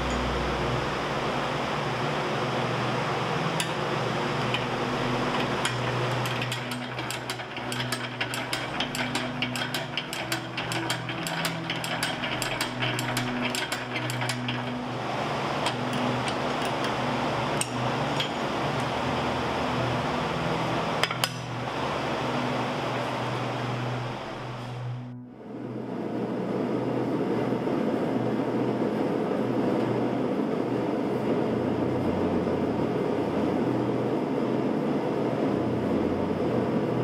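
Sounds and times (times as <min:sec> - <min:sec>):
steady background noise: 0:00.0 - 0:37.0
drill press gears clicking: 0:03.6 - 0:19.0.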